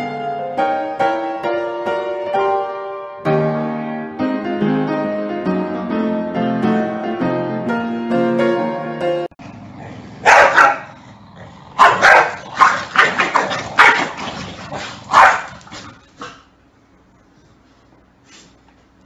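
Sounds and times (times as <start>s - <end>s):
dog barking: 10.2s - 10.9s, 11.8s - 14.2s, 15.1s - 15.6s.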